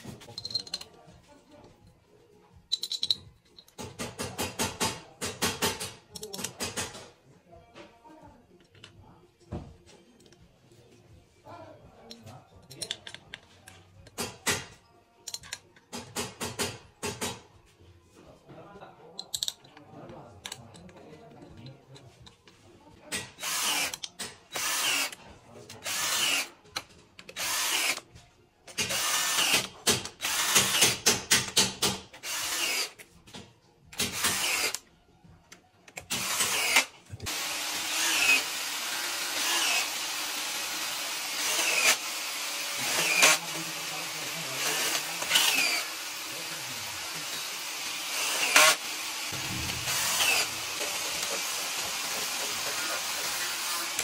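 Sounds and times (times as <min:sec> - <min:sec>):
cordless drill spinning in bursts: 0:23.4 - 0:23.9, 0:24.6 - 0:25.1, 0:25.8 - 0:26.5, 0:27.4 - 0:28.0, 0:28.8 - 0:29.6, 0:30.2 - 0:31.0, 0:32.2 - 0:33.0, 0:34.1 - 0:34.8, 0:36.1 - 0:54.0.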